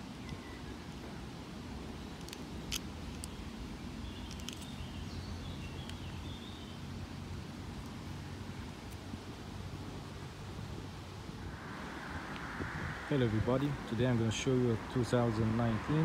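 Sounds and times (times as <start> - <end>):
low outdoor rumble: 0.0 - 16.0
faint bird chirps: 0.1 - 1.2.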